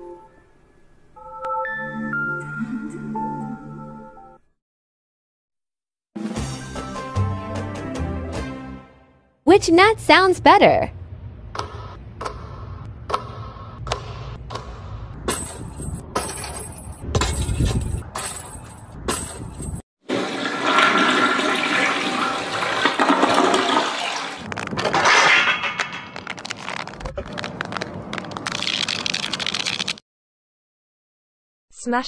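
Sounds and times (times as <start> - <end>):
toilet flushing: 20.0 - 24.4.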